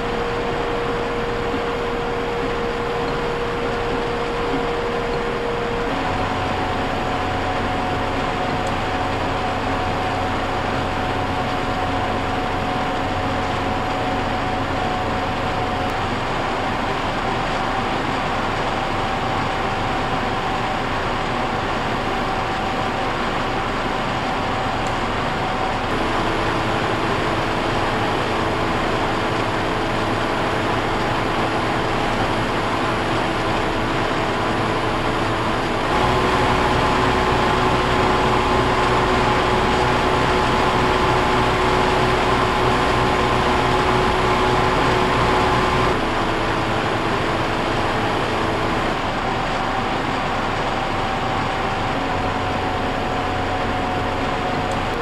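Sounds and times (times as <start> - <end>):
air conditioner fan rushing: 0.0 - 55.0
air conditioner steady tones: 0.0 - 55.0.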